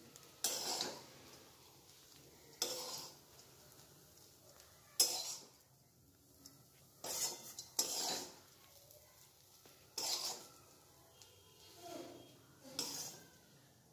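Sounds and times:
spatula scraping a pan: 0:00.0 - 0:03.9, 0:04.5 - 0:05.6, 0:06.4 - 0:08.8, 0:09.5 - 0:10.8, 0:11.6 - 0:13.5.

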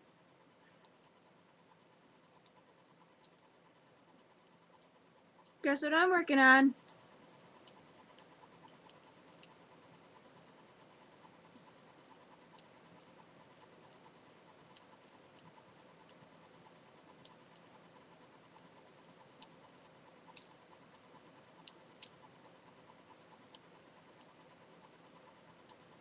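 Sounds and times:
knitting needles clicking: 0:02.2 - 0:05.6, 0:06.7 - 0:09.6, 0:18.5 - 0:24.4.

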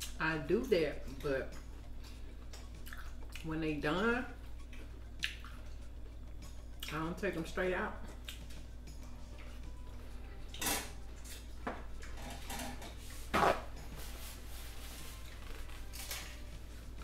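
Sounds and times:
low steady hum: 0:00.0 - 0:17.0
paper towel rustling: 0:13.2 - 0:16.0.

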